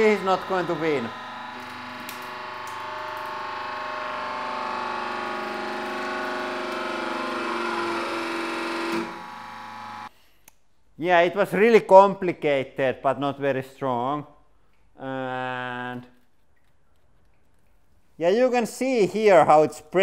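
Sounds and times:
hydraulic press whining hum: 0.0s - 10.1s.

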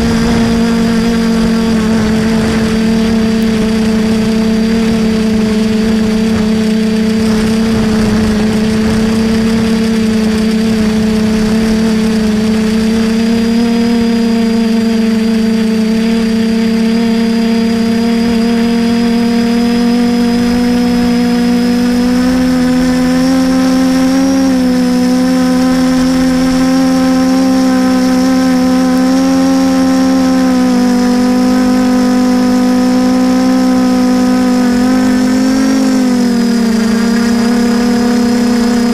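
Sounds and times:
quadcopter motors droning: 0.0s - 38.9s.

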